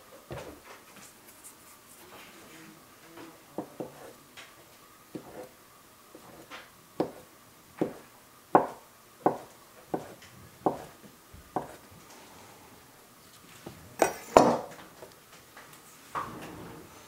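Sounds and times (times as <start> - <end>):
knife chopping on wooden board: 5.1 - 5.5, 6.2 - 8.0, 8.6 - 11.0, 11.6 - 11.8.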